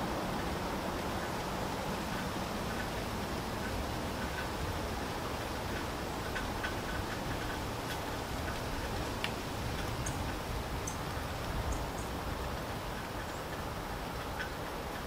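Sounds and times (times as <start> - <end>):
steady rain falling: 0.0 - 15.0
light irregular ticks: 3.6 - 15.0.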